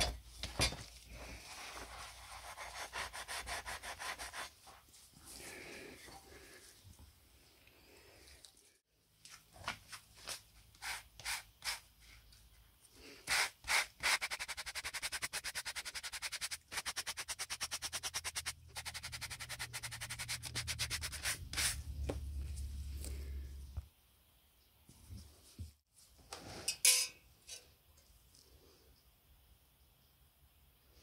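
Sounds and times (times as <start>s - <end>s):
sanding sponge scrubbing metal: 2.2s - 4.5s, 13.3s - 21.8s.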